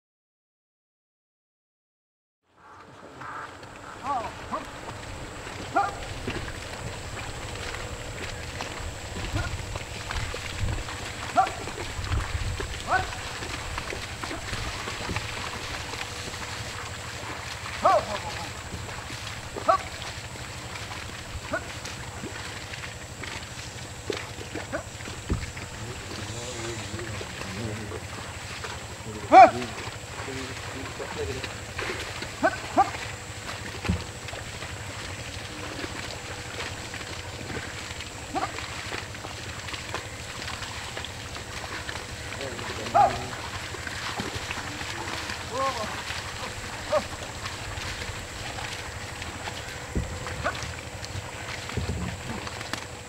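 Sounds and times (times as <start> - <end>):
mud sloshing and splashing: 2.6 - 53.0
low rumbling noise: 2.8 - 53.0
man calling to buffalo: 3.2 - 4.9, 5.6 - 6.1, 9.2 - 9.6, 11.3 - 11.8, 12.8 - 13.6, 17.8 - 18.6, 19.6 - 20.0, 25.7 - 28.1, 29.0 - 31.5, 32.4 - 33.0, 38.3 - 38.6, 42.4 - 43.4, 45.0 - 46.0, 46.7 - 47.2
low thump: 25.2 - 25.6.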